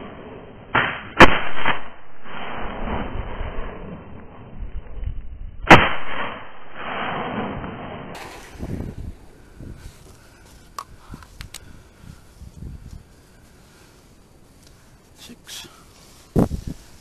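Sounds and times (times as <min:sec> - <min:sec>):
shotgun blast: 0:00.7 - 0:03.1, 0:05.6 - 0:08.5.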